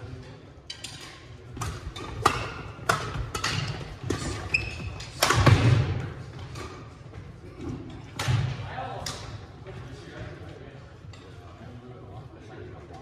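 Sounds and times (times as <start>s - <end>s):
racket hitting shuttlecock: 1.6s - 4.4s, 5.0s - 6.8s
shoe squeak: 4.2s - 5.0s.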